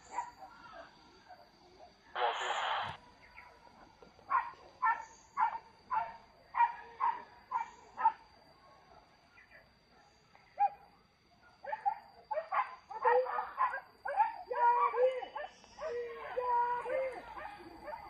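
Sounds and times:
dog barking: 0:00.0 - 0:00.8, 0:04.3 - 0:08.3, 0:10.6 - 0:10.9, 0:11.5 - 0:18.0.

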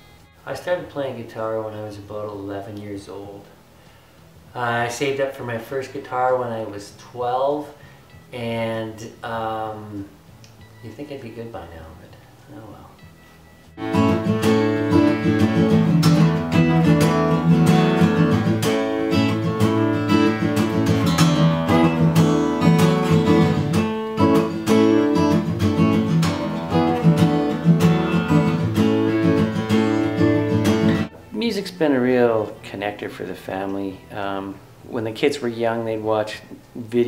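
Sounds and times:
acoustic guitar strummed chords: 0:12.9 - 0:31.3.

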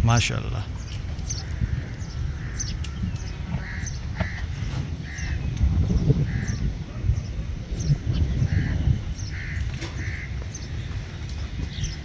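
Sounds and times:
steady low rumble: 0:00.0 - 0:12.0
crows cawing: 0:01.3 - 0:05.5, 0:06.2 - 0:06.6, 0:08.4 - 0:10.9.

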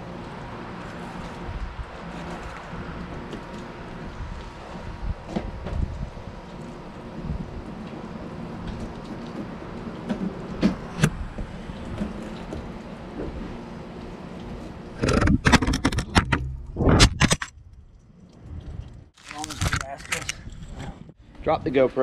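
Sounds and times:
outdoor background noise: 0:00.0 - 0:22.0
camera being handled: 0:19.2 - 0:20.4.

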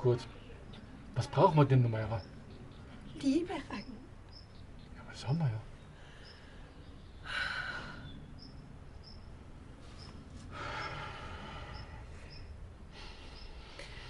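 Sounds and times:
faint high chirps: 0:11.7 - 0:12.6.

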